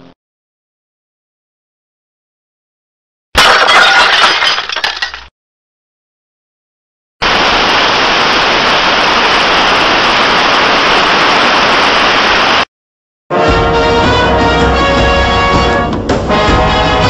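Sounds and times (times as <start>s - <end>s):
loud static hiss: 7.2s - 12.7s
music: 13.3s - 17.0s.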